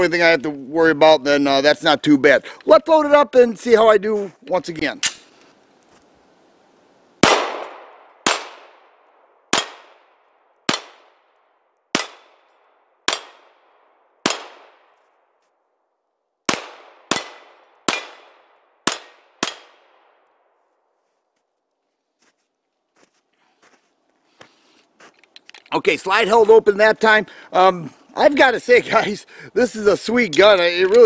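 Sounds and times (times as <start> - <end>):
pistol shots with echo: 7.2 - 11.2, 11.9 - 12.5, 13.1 - 14.9, 16.5 - 20.2.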